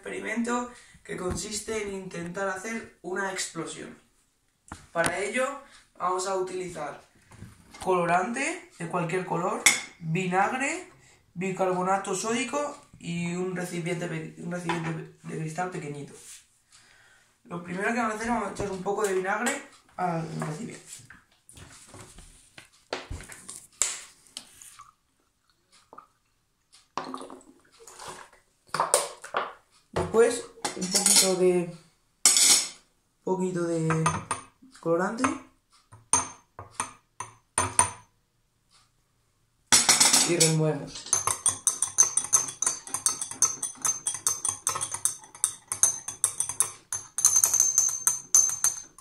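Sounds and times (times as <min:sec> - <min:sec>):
liquid pouring into a glass jar: 0:24.6 - 0:28.4
spoon clinking in glass jar: 0:39.8 - 0:49.0
glass ringing: 0:41.1 - 0:49.0.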